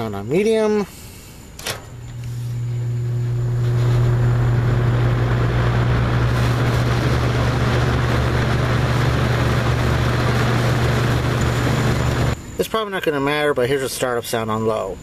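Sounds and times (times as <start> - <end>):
fan motor humming: 0.0 - 12.6
rush of air from fan blades: 0.9 - 12.4.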